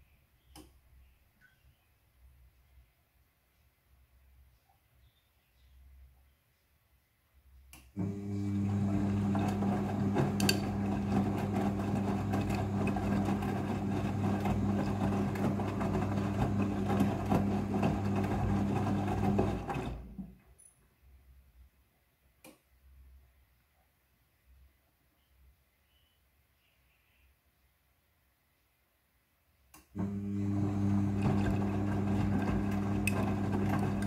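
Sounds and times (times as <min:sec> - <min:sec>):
washing machine motor humming: 0:08.0 - 0:20.2, 0:30.0 - 0:34.0.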